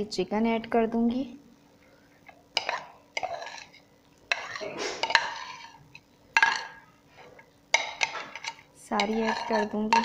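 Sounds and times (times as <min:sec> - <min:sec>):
crockery scraping and clinking: 0:02.6 - 0:05.8, 0:06.4 - 0:10.0.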